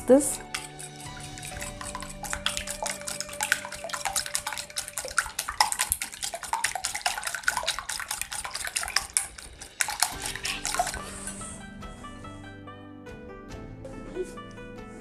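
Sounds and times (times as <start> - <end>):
whisk clicking against glass bowl: 0.3 - 11.3
egg splashing: 0.3 - 11.6.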